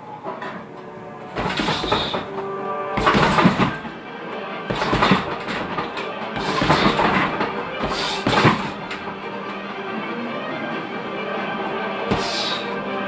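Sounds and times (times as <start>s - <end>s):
background music: 0.0s - 13.0s
gloved punches on heavy bag: 1.4s - 2.3s, 3.0s - 3.9s, 4.7s - 9.0s.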